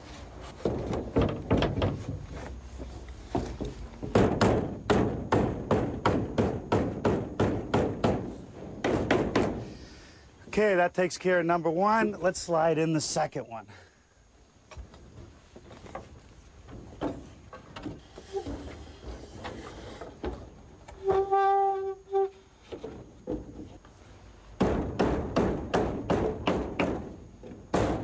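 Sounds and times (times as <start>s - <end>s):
wooden beam knocks and thumps: 0.6s - 2.5s, 3.3s - 9.7s, 15.6s - 21.3s, 22.7s - 23.8s, 24.6s - 28.0s
sharp knocks: 3.4s - 9.7s, 24.6s - 27.1s, 27.7s - 28.0s
pitched squeal: 21.0s - 22.5s.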